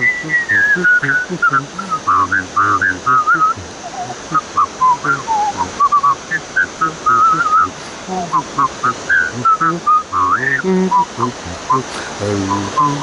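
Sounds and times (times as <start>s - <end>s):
barrel organ oom-pah: 0.0s - 13.0s
waterfall rushing: 0.0s - 13.0s
whistled polka melody: 0.0s - 13.0s.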